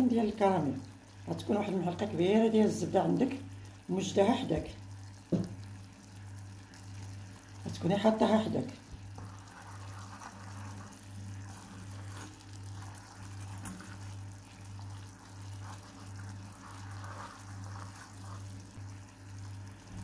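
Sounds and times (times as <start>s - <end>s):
sugar syrup boiling and bubbling: 0.0s - 20.0s
wooden spoon stirring: 8.8s - 20.0s.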